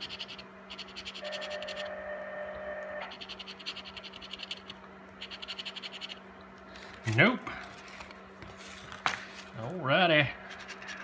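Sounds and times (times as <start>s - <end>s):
coin scraping scratch-off ticket: 0.0s - 2.0s.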